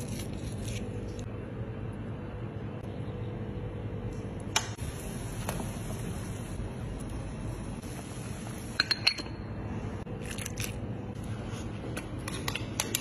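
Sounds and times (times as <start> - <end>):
water boiling in a pot: 4.8 - 9.2.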